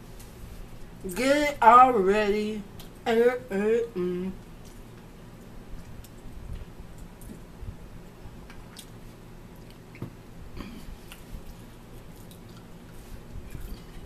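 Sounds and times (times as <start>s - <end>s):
person chewing food: 8.4s - 14.0s.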